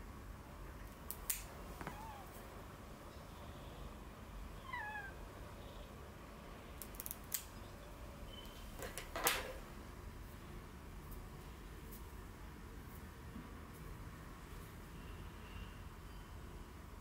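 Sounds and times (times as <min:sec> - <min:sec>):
cat meowing: 0:01.8 - 0:02.4, 0:04.6 - 0:05.2.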